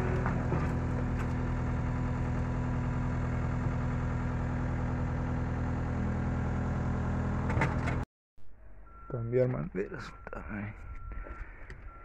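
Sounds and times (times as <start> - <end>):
diesel engine idling: 0.0 - 7.5.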